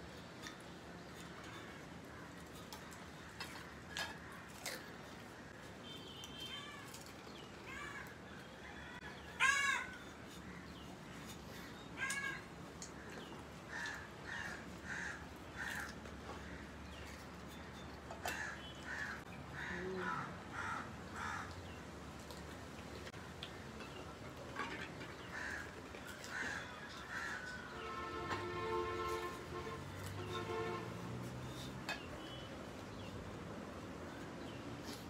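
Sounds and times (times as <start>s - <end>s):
crows cawing: 9.3s - 10.6s, 13.7s - 16.7s, 18.2s - 21.6s, 25.3s - 27.8s.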